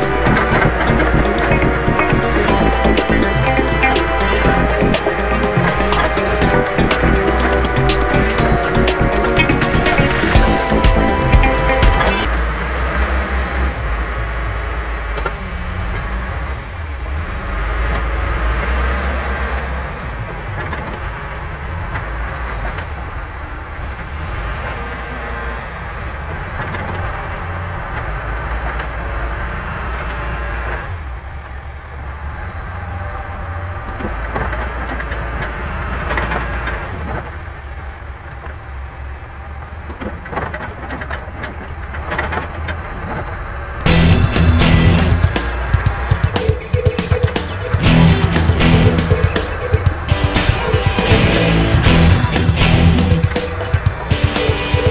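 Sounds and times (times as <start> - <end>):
backhoe diesel engine running: 0.0 - 13.2, 43.9 - 54.9.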